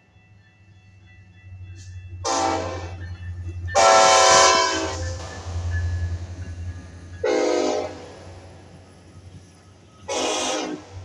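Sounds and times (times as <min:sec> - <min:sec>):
passing train rumble: 0:00.0 - 0:11.0
locomotive air horn blasts: 0:02.2 - 0:03.0, 0:03.8 - 0:05.2, 0:07.2 - 0:08.3, 0:10.0 - 0:11.0.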